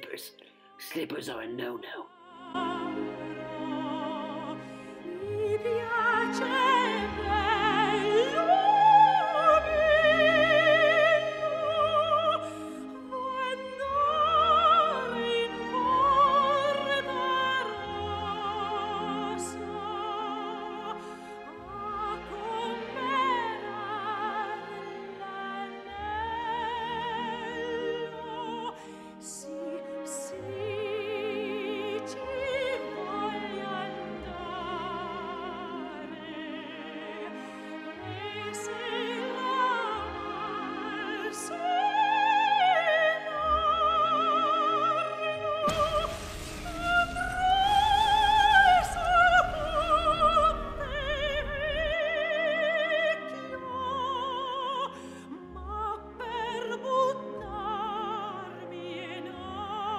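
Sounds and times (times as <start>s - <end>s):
operatic singing with vibrato: 0.0s - 59.9s
orchestral accompaniment: 0.0s - 59.9s
loud rushing noise: 45.7s - 52.1s.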